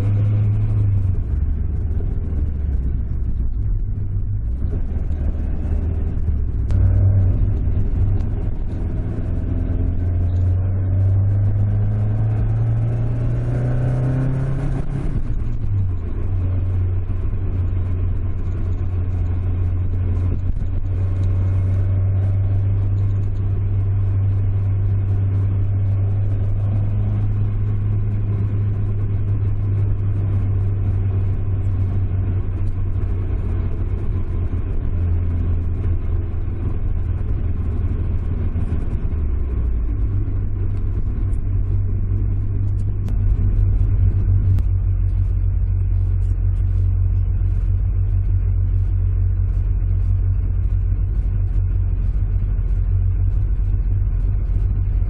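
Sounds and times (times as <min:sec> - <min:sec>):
car engine running at low revs: 0:00.0 - 0:55.0.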